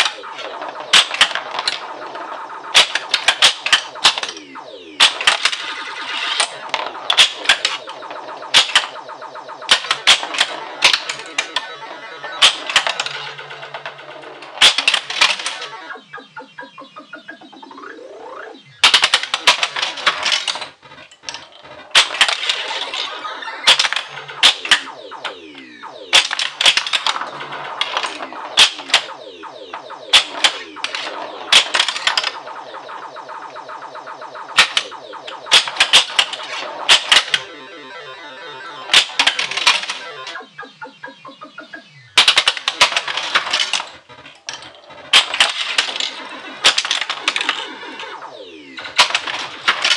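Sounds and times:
pinball flipper and ball clacks: 0.0 - 9.0, 12.3 - 15.7, 18.8 - 25.4, 26.1 - 33.0, 33.6 - 37.5, 38.8 - 40.4, 42.2 - 48.1, 48.8 - 49.9
pinball electronic beeps: 0.0 - 49.9.

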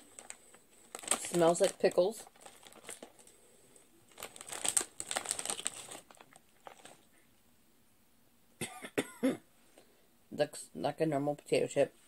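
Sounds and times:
chip bag crinkling: 0.0 - 7.1.

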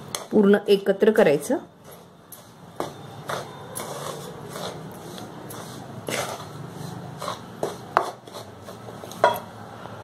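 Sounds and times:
spatula scraping spices in pan: 1.8 - 9.5
spatula knocking against pan: 7.6 - 8.2.

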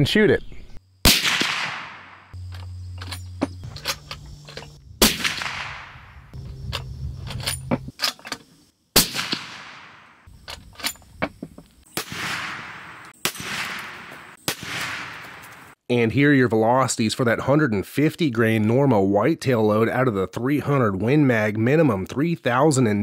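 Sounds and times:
suppressed rifle shots: 1.0 - 3.1, 5.0 - 6.4, 9.0 - 10.3, 11.9 - 15.7.

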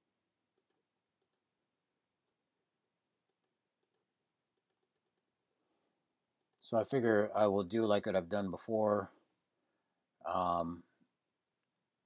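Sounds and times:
computer mouse clicks: 0.5 - 1.4, 3.2 - 5.3.

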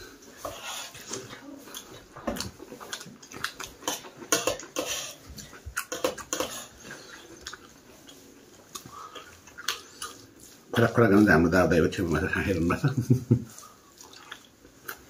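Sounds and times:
rice scraping on steel plate: 0.4 - 1.1, 3.9 - 5.2, 5.9 - 7.0
chewing and lip smacks: 1.0 - 10.5, 13.6 - 15.0.

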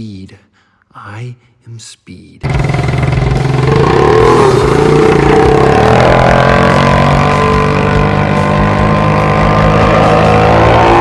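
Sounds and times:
go-kart engine running: 2.4 - 11.0.

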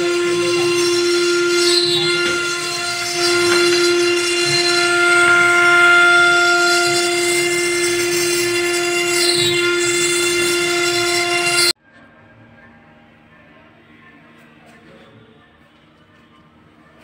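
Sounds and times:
router spindle whining: 0.0 - 11.8.

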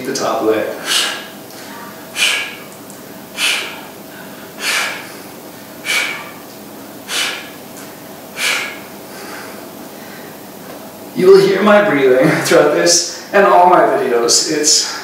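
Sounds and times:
man breathing hard: 0.7 - 6.4, 7.0 - 7.6, 8.3 - 10.4.

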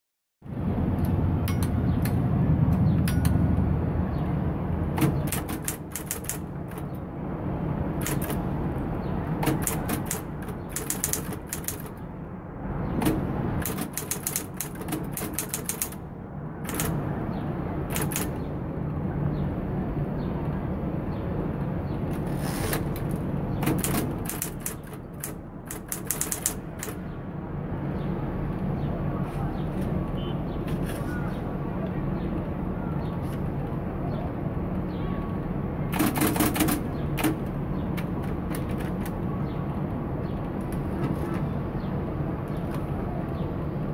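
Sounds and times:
typewriter keys clacking: 5.0 - 6.9, 8.0 - 8.4, 9.4 - 12.0, 13.6 - 16.0, 16.7 - 17.0, 17.9 - 18.4, 23.6 - 27.0
typewriter motor hum: 9.4 - 12.0, 23.7 - 27.0.

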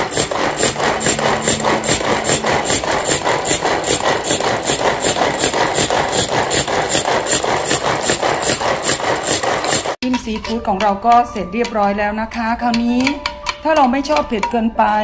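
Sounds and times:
food chopper blades whirring: 0.0 - 10.0.

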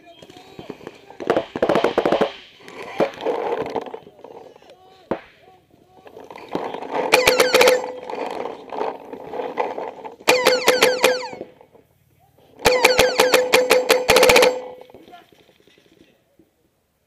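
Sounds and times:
paintball marker firing: 0.7 - 3.4, 6.5 - 8.9, 9.6 - 11.5, 12.6 - 15.0
steady tone: 10.2 - 11.5.

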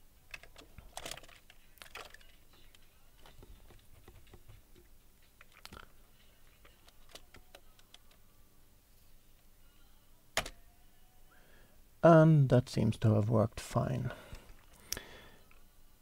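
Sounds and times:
computer keyboard keystrokes: 0.3 - 4.5, 6.7 - 8.2.

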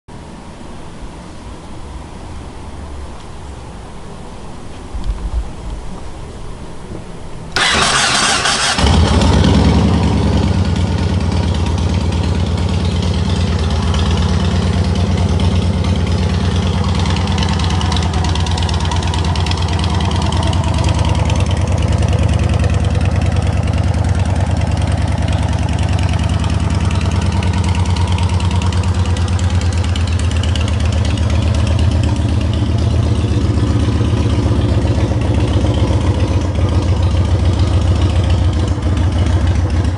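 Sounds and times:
motorcycle engine idling: 7.0 - 39.9
motorcycle electric starter cranking: 7.6 - 10.0.

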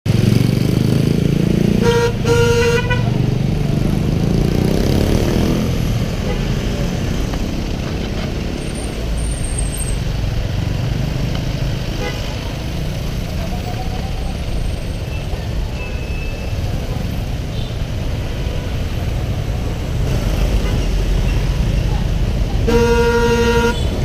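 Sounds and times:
traffic engine rumble: 0.1 - 24.0
vehicle horn honking: 1.8 - 3.2, 22.6 - 24.0.

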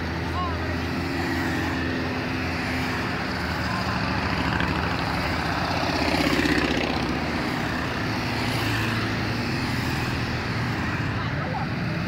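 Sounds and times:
motorcycles riding past: 0.0 - 12.0.

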